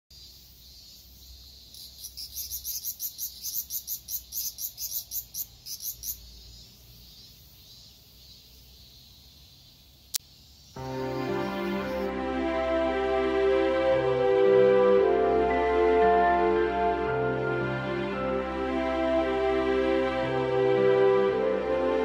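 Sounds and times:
cicada fast pulsing call: 0.1s - 12.1s
cicadas high buzz: 0.1s - 12.7s.

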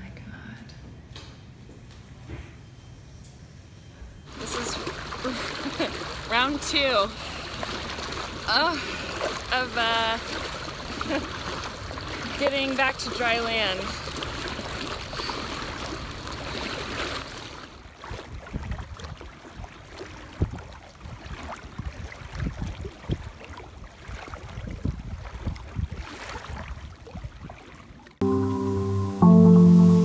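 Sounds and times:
water sloshing around person wading: 4.3s - 28.2s
music: 28.2s - 30.0s.

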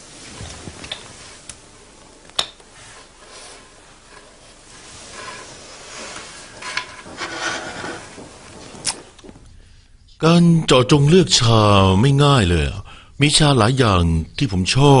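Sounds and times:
soft rubbing: 0.0s - 9.5s.

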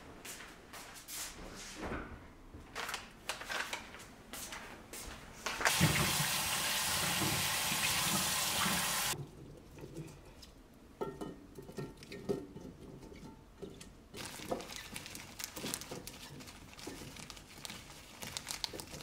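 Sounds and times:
tap running water: 5.7s - 9.2s.

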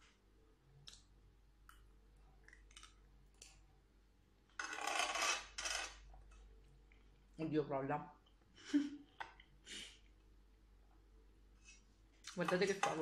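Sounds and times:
chewing with faint clicks: 0.8s - 3.6s.

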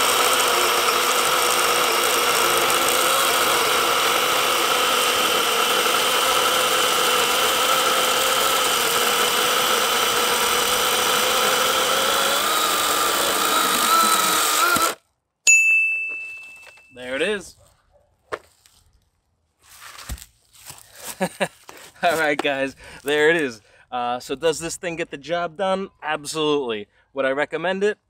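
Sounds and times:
chainsaw sawing through log: 0.0s - 15.0s
high ringing tone: 15.5s - 17.2s.

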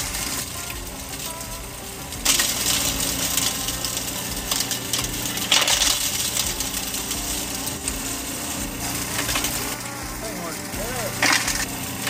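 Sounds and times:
motor hum: 0.0s - 12.0s
rock rattling in crusher: 2.2s - 12.0s
crushed rock clattering into pan: 11.2s - 11.8s.

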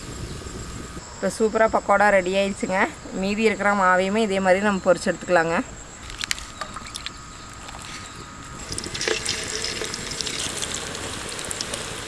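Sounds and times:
oil sizzling and crackling: 6.0s - 12.0s.

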